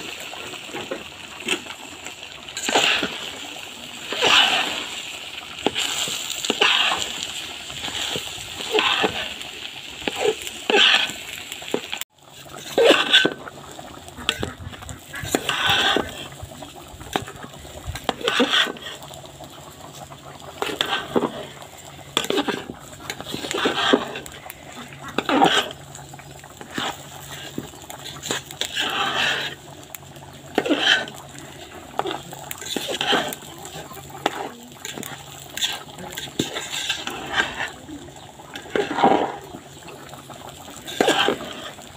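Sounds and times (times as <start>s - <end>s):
metal spoon scraping rice in pot: 2.5s - 9.4s, 10.0s - 13.6s, 14.2s - 16.4s, 17.1s - 19.0s, 20.6s - 29.7s, 30.5s - 37.8s, 38.5s - 39.5s, 40.5s - 41.9s.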